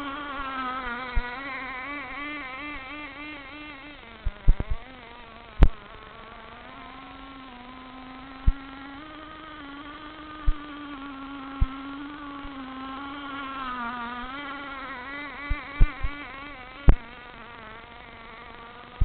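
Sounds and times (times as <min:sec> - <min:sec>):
model boat engine buzzing: 0:00.0 - 0:19.0
sharp clicks near microphone: 0:04.2 - 0:04.9, 0:05.6 - 0:05.9.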